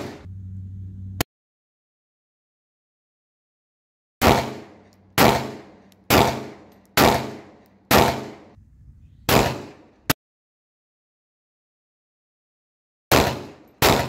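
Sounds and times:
pistol shots: 0:04.2 - 0:08.6, 0:09.3 - 0:09.9, 0:13.1 - 0:14.0.

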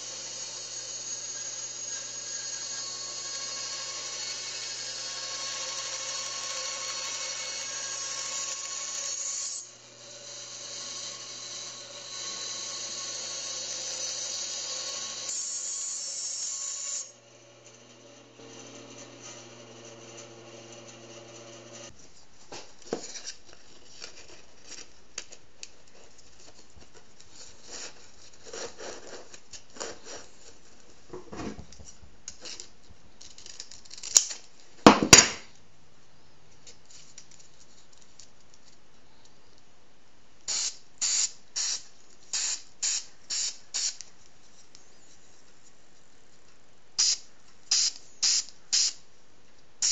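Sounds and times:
bandsaw hum: 0:00.0 - 0:21.9
spray can hisses: 0:40.5 - 0:44.0, 0:47.0 - 0:49.0.

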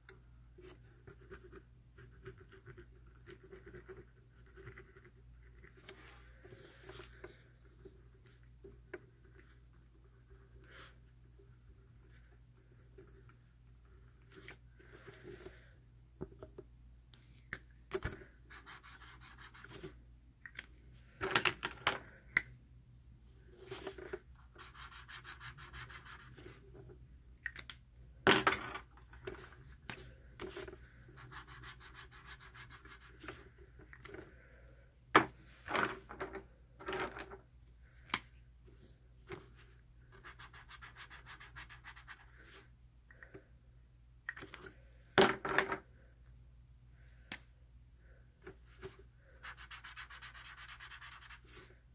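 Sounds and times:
marker scribbling on paper: 0:31.2 - 0:33.4, 0:49.4 - 0:51.6.

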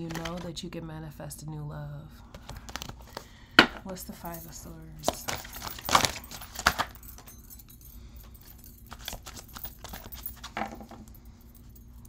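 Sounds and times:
cards being shuffled: 0:00.0 - 0:00.5, 0:02.3 - 0:03.3, 0:05.0 - 0:07.0, 0:08.9 - 0:11.0.

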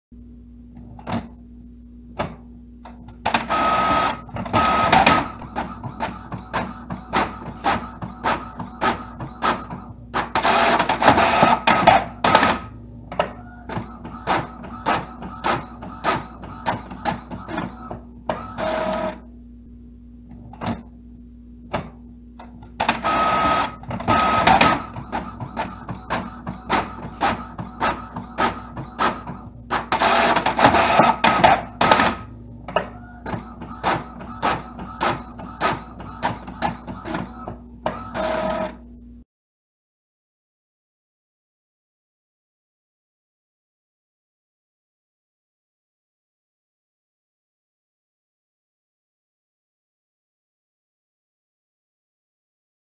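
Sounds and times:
low printer hum: 0:00.2 - 0:39.2
rapid printer clicking: 0:03.2 - 0:19.2, 0:22.7 - 0:38.8
printer mechanical bursts: 0:03.2 - 0:19.3, 0:22.7 - 0:38.8.

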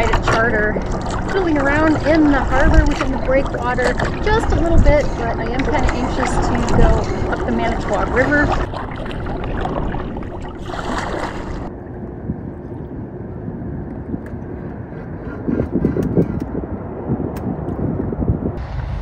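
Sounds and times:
splashes and knocks: 0:00.0 - 0:11.7
water lapping against kayak hull: 0:00.0 - 0:11.7
wind rumbling on microphone: 0:00.0 - 0:19.0.

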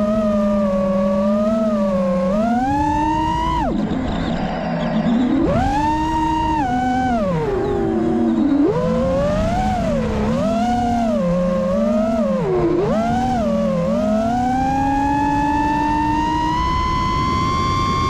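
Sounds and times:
drone motors and propellers whining: 0:00.0 - 0:18.0.

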